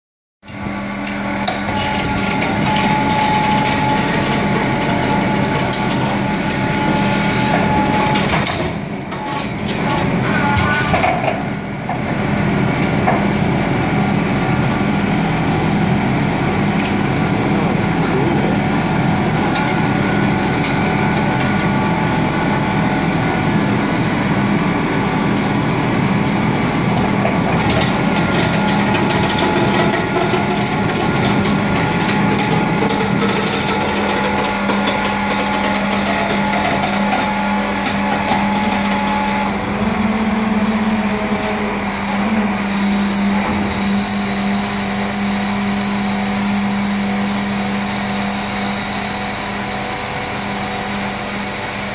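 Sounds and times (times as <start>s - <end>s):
garbage truck chain winch: 27.6s - 39.4s.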